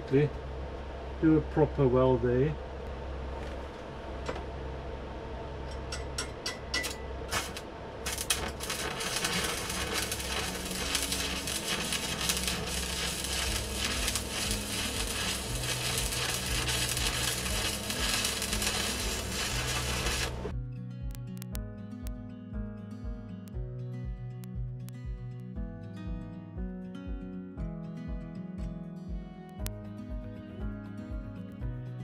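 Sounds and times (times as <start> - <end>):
welding arc striking clicks: 5.7 - 20.5, 21.1 - 21.6
arc welding crackle: 6.8 - 20.5, 21.1 - 21.6.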